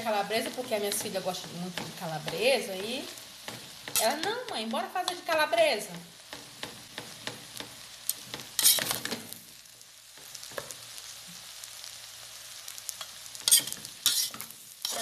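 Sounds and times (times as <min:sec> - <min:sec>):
food sizzling: 0:00.0 - 0:15.0
metal spoon scraping pan: 0:08.1 - 0:09.2, 0:13.0 - 0:15.0.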